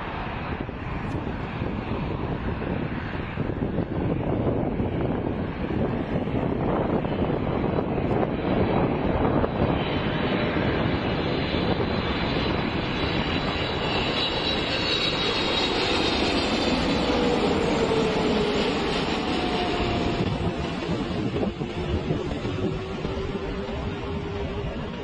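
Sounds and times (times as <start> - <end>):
jet airliner passing low: 0.0 - 25.0.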